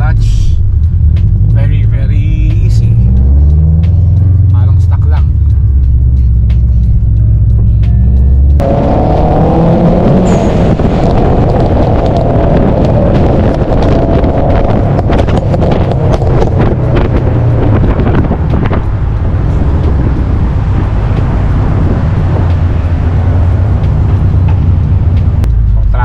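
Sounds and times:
car engine and road noise: 0.0 - 26.0
wind buffeting microphone: 8.6 - 25.5.

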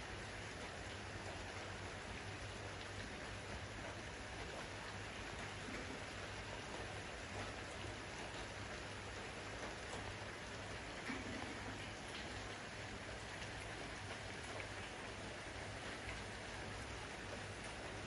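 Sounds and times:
aquarium water splashing and bubbling: 0.0 - 18.0.

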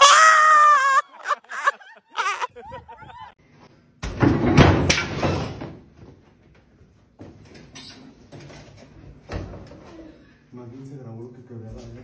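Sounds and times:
loud banging and clattering: 4.1 - 5.8.

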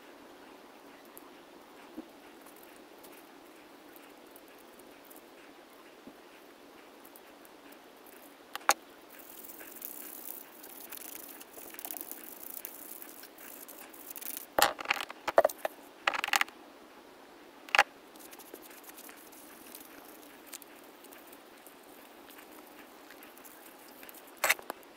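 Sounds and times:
rubbing and scraping hiss: 7.7 - 16.5, 17.7 - 24.9.

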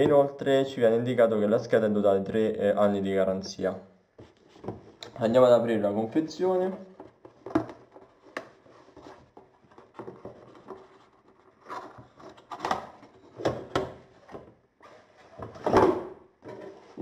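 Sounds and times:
box and packaging rustling: 6.1 - 17.0.

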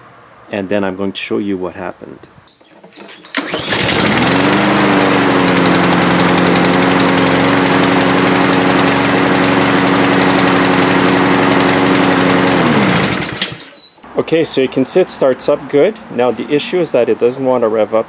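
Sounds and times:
lawn mower engine running: 2.5 - 13.8.

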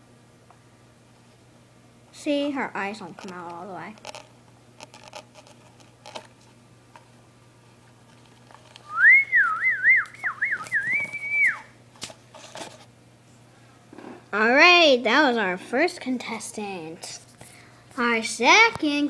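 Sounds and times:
person whistling: 8.8 - 11.8.

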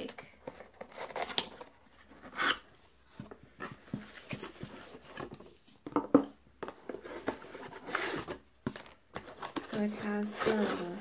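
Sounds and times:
cardboard rustle: 6.7 - 11.0.

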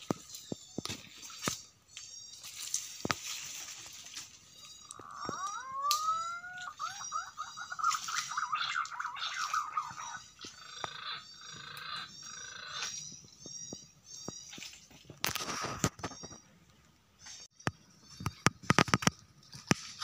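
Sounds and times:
bird whistling rising notes: 4.6 - 14.6
bird quick falling notes: 4.9 - 10.4
short high bird chirps: 4.9 - 13.0.

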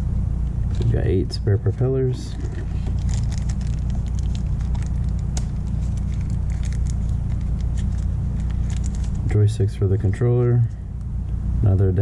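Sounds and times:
loud steady low hum: 0.0 - 12.0
plastic bag rustling and crinkling: 2.3 - 9.3.

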